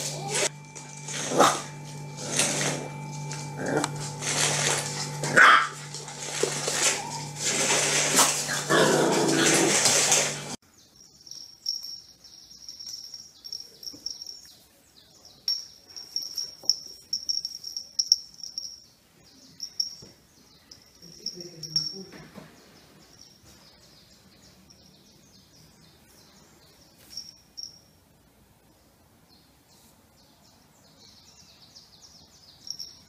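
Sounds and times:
puppies barking: 0.0 - 10.5
steady low hum: 0.0 - 10.6.

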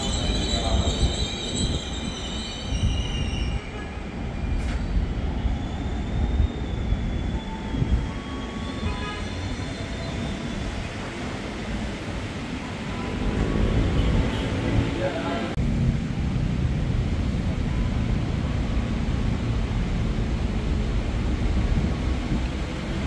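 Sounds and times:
train brake squeal: 0.0 - 11.0
train running noise: 0.0 - 15.6.

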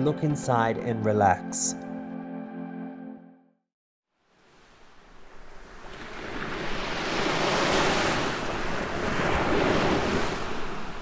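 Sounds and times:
ocean waves breaking: 4.4 - 11.0.

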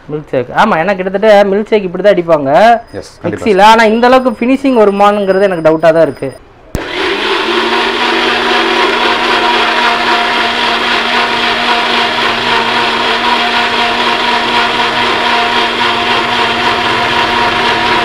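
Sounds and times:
blender motor running: 6.8 - 18.0.

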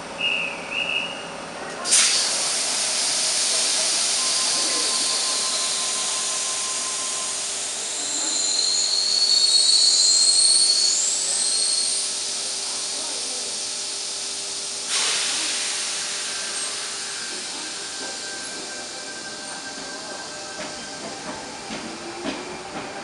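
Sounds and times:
loud hiss of air: 1.9 - 20.6
thin high squealing tones: 8.0 - 12.0.

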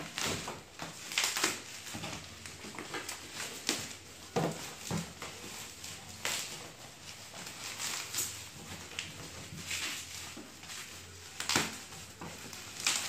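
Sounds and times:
bubble wrap crinkling: 0.0 - 13.0.

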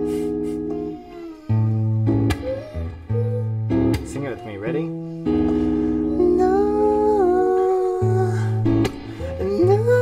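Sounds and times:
person humming: 0.0 - 3.7, 5.9 - 10.0.

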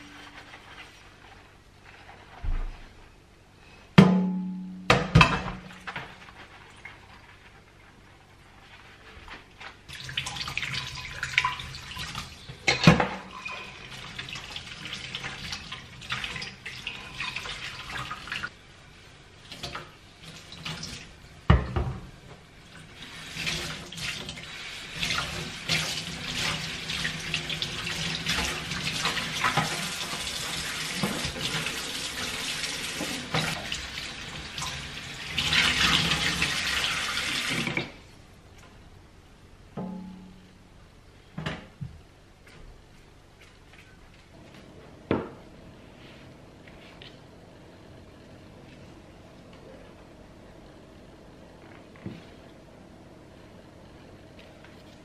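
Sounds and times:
sponge squeezed and rinsed: 0.0 - 2.7, 5.8 - 12.4.

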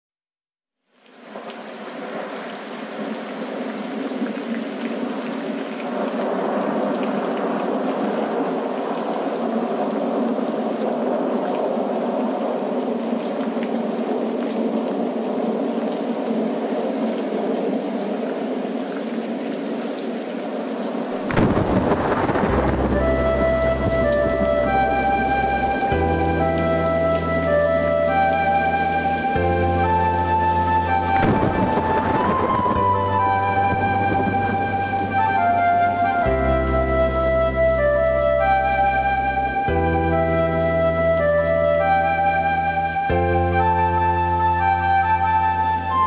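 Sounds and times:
heavy rain: 0.8 - 46.0
thunder rumbling: 21.2 - 45.2.

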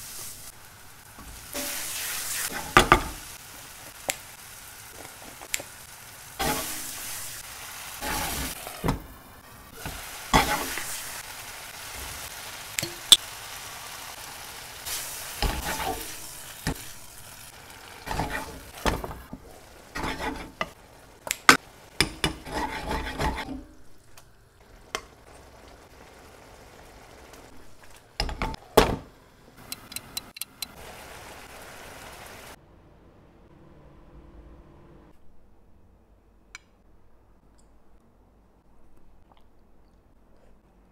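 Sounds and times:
sauce sizzling in a frying pan: 0.0 - 28.0, 30.7 - 32.6
spatula scraping a pan: 15.4 - 16.8, 18.0 - 19.1, 19.9 - 20.8, 22.2 - 23.7.

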